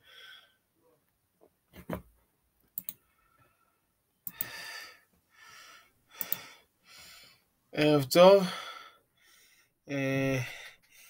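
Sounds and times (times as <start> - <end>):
sharp clicks: 2.7 - 3.0, 4.2 - 4.6, 6.2 - 6.4
breaths close to microphone: 4.3 - 7.5, 8.4 - 9.8.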